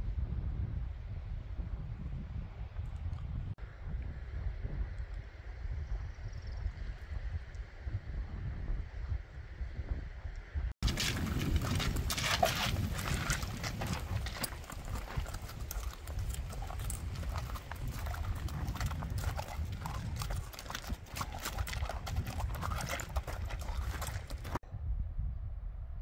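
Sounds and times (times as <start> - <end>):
hooves clopping on stony trail: 10.8 - 24.6.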